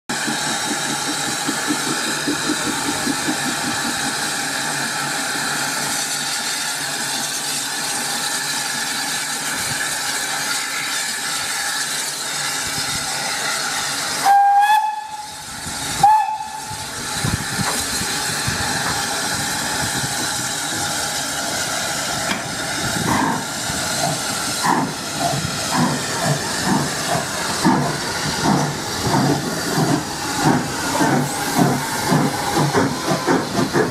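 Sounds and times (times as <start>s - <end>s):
steam locomotive hissing: 0.1s - 33.9s
steam whistle blasts: 14.1s - 17.0s.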